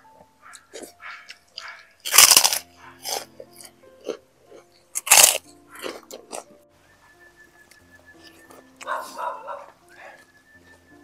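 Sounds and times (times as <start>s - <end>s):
person chewing meat and bones: 0.0s - 6.6s
loud bone crunches: 0.5s - 6.6s.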